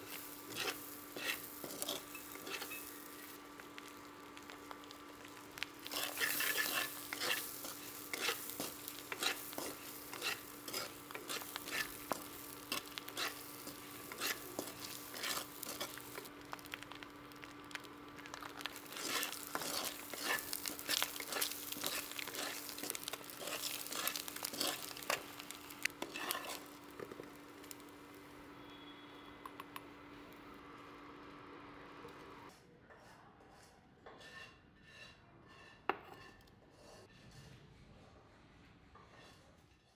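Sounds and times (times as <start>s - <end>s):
spatula scraping in a pan: 0.0s - 16.8s, 17.4s - 27.9s, 32.9s - 37.7s, 38.9s - 39.9s
oil sizzling: 0.0s - 31.3s.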